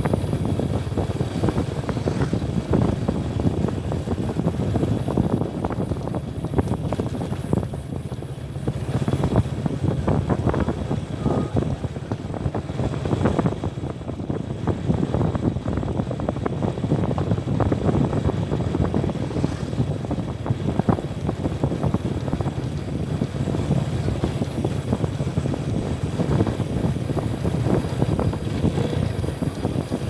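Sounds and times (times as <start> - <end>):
motorcycle engine running: 0.0 - 30.0
wind buffeting microphone: 0.0 - 30.0.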